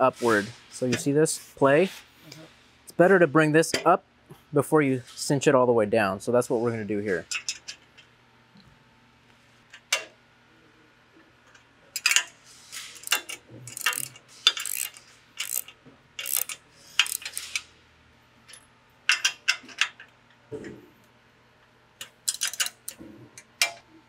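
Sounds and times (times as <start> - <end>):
ratchet wrench clicking: 13.0 - 17.7, 22.2 - 23.0.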